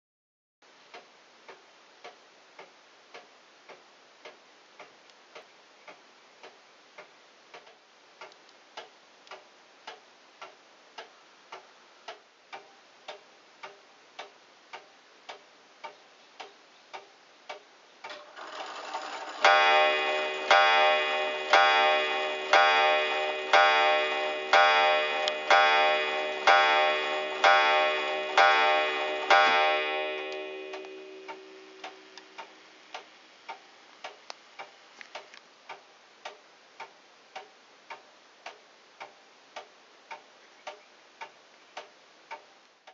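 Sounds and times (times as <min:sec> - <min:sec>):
clock ticking: 0:00.9 - 0:42.9
clock strike train whirring: 0:18.1 - 0:32.5
hammer striking wire gong: 0:19.4 - 0:32.4.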